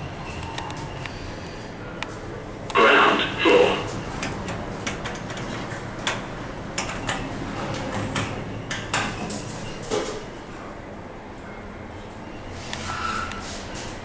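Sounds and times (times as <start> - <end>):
sliding lift doors: 12.2 - 14.0.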